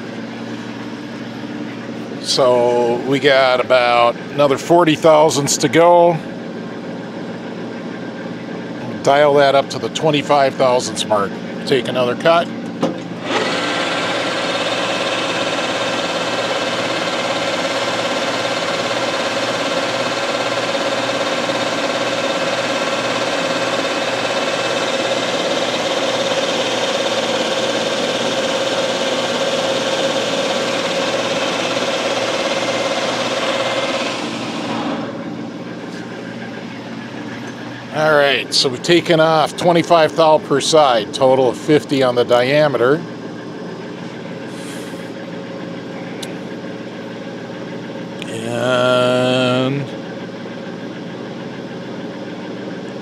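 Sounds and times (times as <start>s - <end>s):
lathe running: 0.0s - 53.0s
lathe cutting metal: 13.2s - 35.1s.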